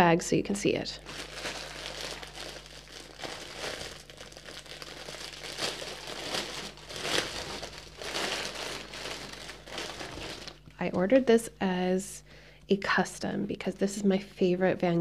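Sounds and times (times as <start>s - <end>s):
plastic bag crinkling: 1.0s - 10.9s.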